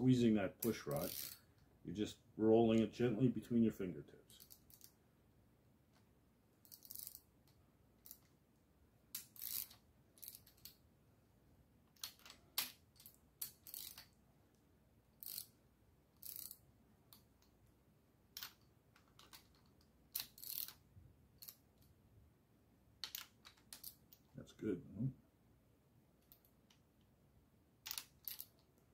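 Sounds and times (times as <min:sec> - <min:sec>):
socket wrench ratcheting: 0:00.6 - 0:01.4, 0:04.4 - 0:04.9, 0:06.6 - 0:08.3, 0:09.2 - 0:10.8, 0:12.0 - 0:14.2, 0:15.2 - 0:15.5, 0:16.2 - 0:17.5, 0:18.4 - 0:20.8, 0:27.8 - 0:28.6.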